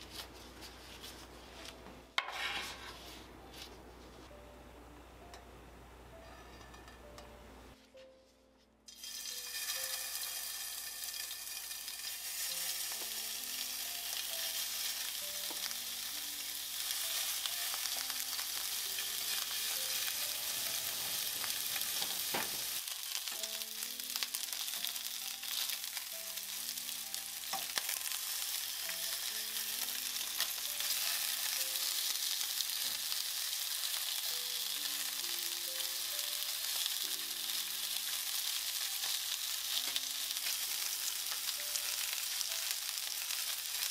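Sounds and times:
soft background music: 0:00.0 - 0:43.9
meat sizzling in oil: 0:08.9 - 0:43.9.

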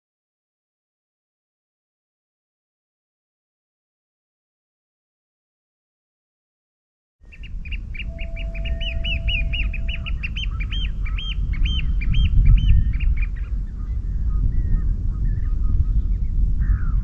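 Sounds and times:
birds chirping: 0:07.2 - 0:17.0
loud low rumble: 0:07.6 - 0:17.0
steady tone: 0:07.8 - 0:12.1.

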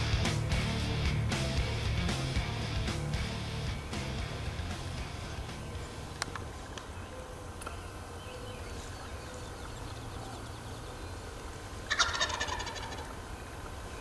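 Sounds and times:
turkey gobbling: 0:11.8 - 0:13.2.

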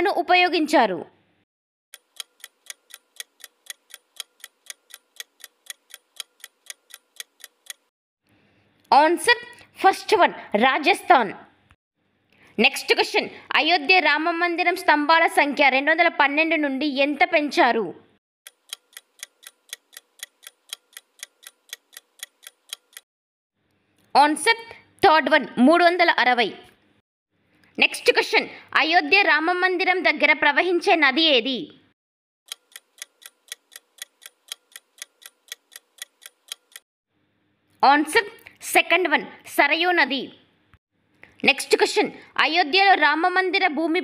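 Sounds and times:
clock ticking: 0:01.9 - 0:07.9, 0:18.5 - 0:23.1, 0:32.5 - 0:36.8.

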